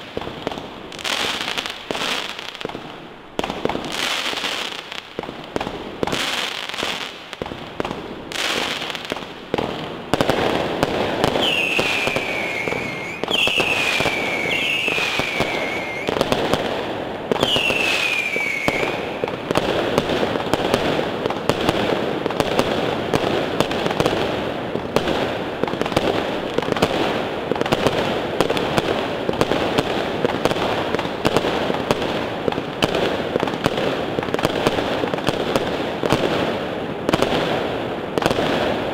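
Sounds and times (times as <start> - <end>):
fireworks bangs and crackle: 0.0 - 38.9
falling firework whistles: 10.2 - 19.7.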